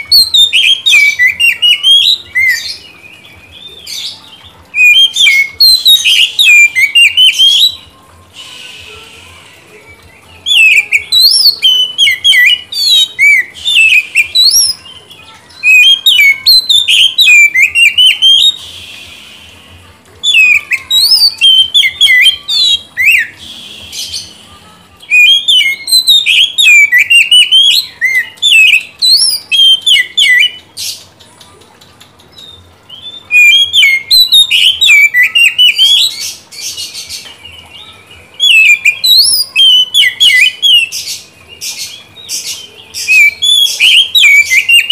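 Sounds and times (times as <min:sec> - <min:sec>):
bird singing whistles and chirps: 0:00.0 - 0:31.1, 0:32.3 - 0:44.9
harsh rasping bird notes: 0:08.3 - 0:09.7, 0:15.7 - 0:28.4.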